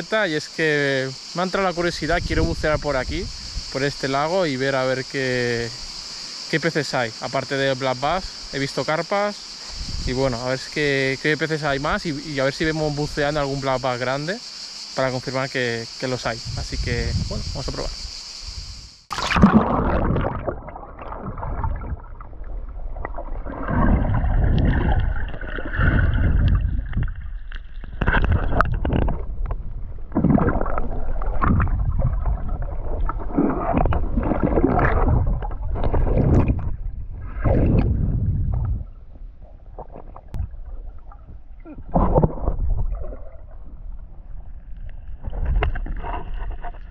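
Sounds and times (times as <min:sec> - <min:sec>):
muffled underwater sloshing: 0:19.1 - 0:46.9.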